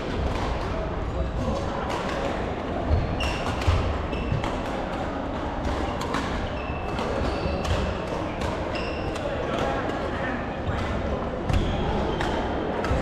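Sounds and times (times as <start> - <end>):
racket hitting shuttlecock: 3.2 - 9.8.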